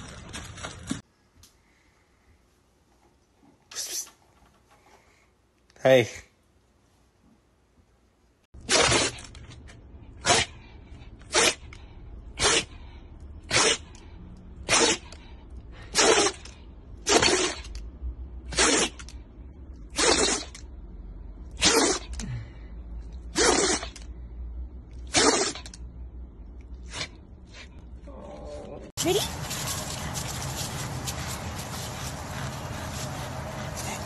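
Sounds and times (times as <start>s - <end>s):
dog sneezing: 10.2s - 10.6s, 11.3s - 11.7s, 12.4s - 12.8s, 13.4s - 13.9s, 14.6s - 15.2s, 15.8s - 17.7s, 18.5s - 19.1s, 19.9s - 20.6s, 21.6s - 22.2s, 23.3s - 24.0s, 25.1s - 25.8s, 26.8s - 27.7s.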